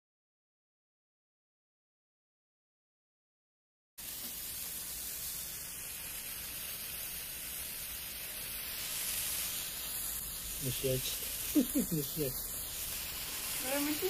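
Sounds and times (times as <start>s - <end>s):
firework sparks hissing: 4.0s - 14.0s.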